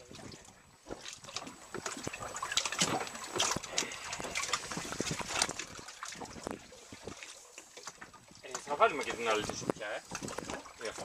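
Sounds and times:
water lapping against boat hull: 0.0s - 11.0s.

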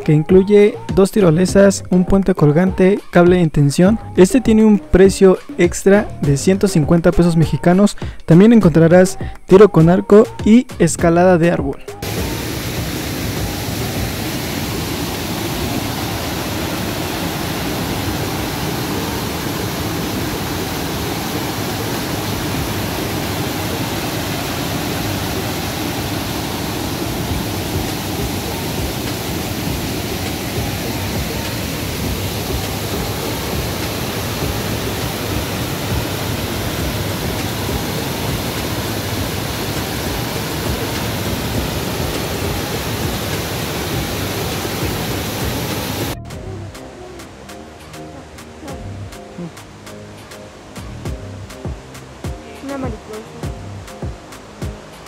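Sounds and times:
waterfall rushing: 12.0s - 55.0s.

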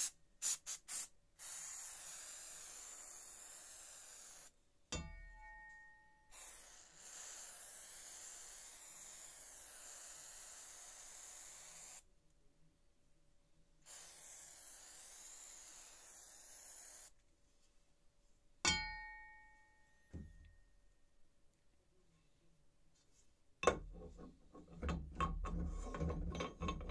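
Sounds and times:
aerosol spray can hissing: 0.0s - 4.6s, 6.3s - 12.1s, 13.8s - 17.2s
sharp metallic clang: 4.9s - 6.2s, 18.7s - 20.3s.

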